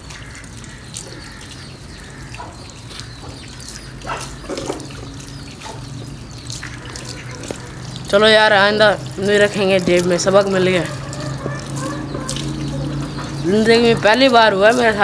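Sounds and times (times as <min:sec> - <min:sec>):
tap water running and splashing: 0:00.0 - 0:15.0.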